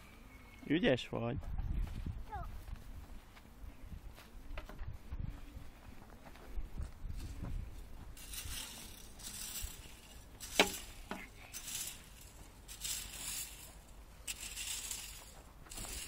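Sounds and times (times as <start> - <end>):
garden tool scraping dry soil: 7.2 - 16.0.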